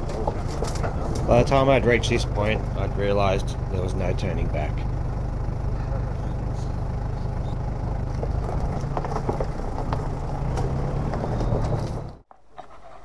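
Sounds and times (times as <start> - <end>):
low engine rumble: 0.0 - 12.3.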